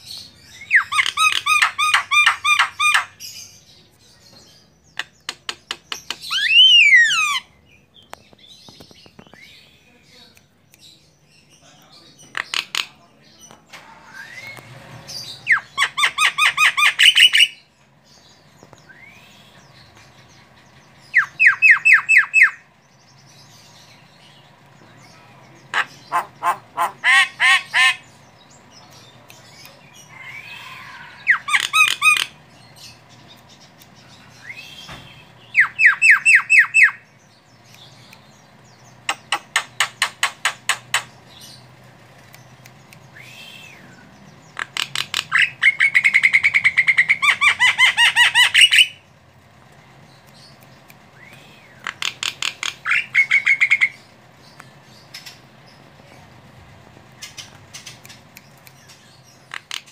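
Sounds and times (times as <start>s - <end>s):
bird harsh repeated calls: 0.0s - 3.6s, 5.0s - 7.6s, 14.2s - 17.7s, 21.0s - 22.7s, 25.6s - 28.3s, 29.6s - 33.1s, 34.2s - 37.2s, 38.9s - 41.7s, 42.5s - 49.1s, 51.2s - 54.2s, 57.2s - 59.9s
faint bird whistles: 14.0s - 14.8s, 18.8s - 19.6s, 34.4s - 37.0s, 43.1s - 44.0s, 51.2s - 51.8s.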